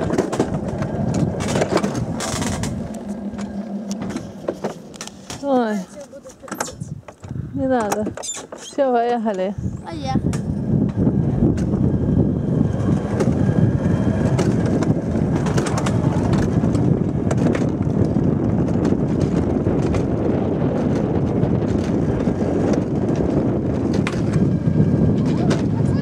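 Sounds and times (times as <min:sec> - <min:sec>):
clicks and rattles: 0:00.0 - 0:09.5
coaster sled rumbling on metal rail: 0:00.0 - 0:26.0.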